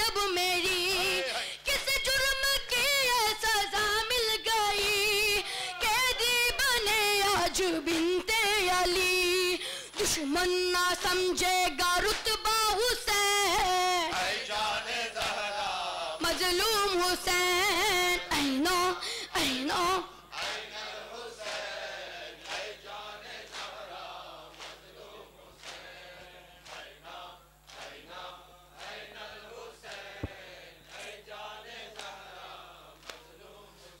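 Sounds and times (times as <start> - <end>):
crowd of men chanting: 5.6 - 6.9, 14.1 - 16.3, 20.3 - 34.0.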